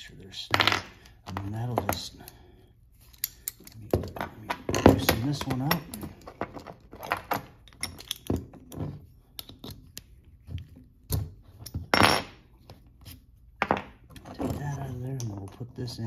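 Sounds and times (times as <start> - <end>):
metal tool parts clinking: 3.0 - 10.2.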